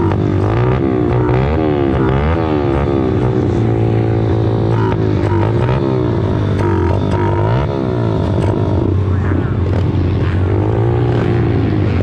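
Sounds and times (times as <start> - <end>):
motorbike engines idling: 0.0 - 12.0
motorbike engines revving: 0.0 - 12.0.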